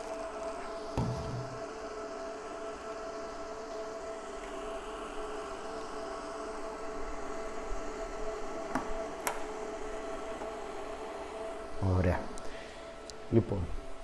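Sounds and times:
steady electrical hum: 0.0 - 14.0
cable plugs clicking in: 8.7 - 9.4.

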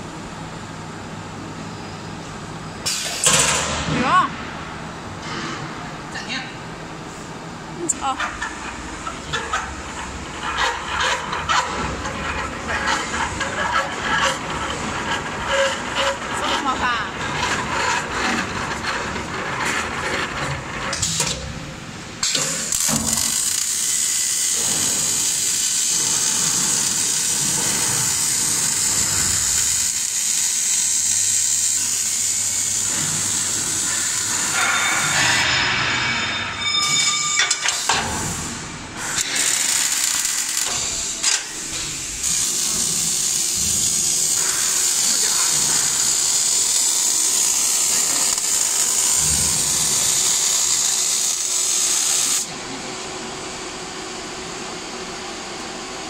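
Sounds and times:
arc welding crackle: 22.2 - 35.4, 39.2 - 52.5
machine tones: 32.8 - 38.0.

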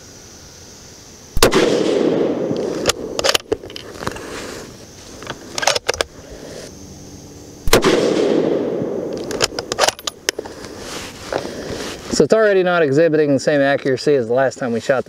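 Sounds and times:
rifle shot with rolling echo: 1.4 - 3.6, 7.6 - 10.0.

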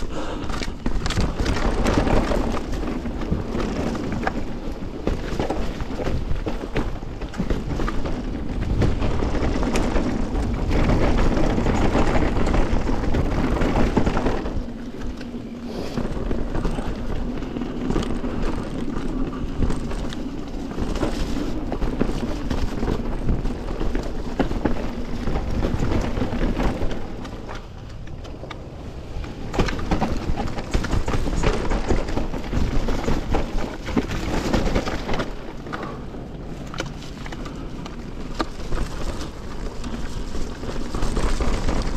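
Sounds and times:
bike rattling: 0.0 - 41.9
tyre noise on dirt: 0.0 - 41.9.

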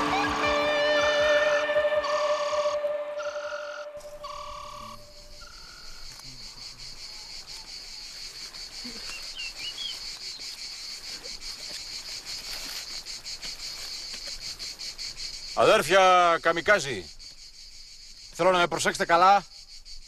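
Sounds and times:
electronic music note: 0.0 - 5.3
bird chirps: 0.0 - 6.1, 8.8 - 10.6
insects chirring: 0.0 - 20.0.

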